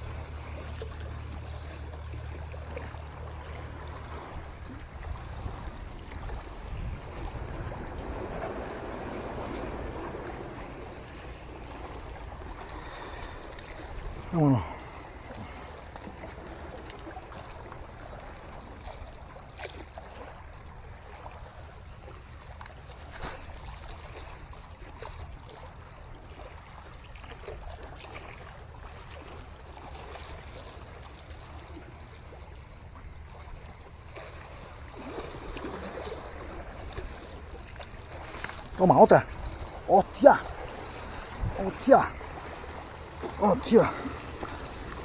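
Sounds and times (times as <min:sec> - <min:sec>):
water lapping against rocks: 0:00.0 - 0:45.0.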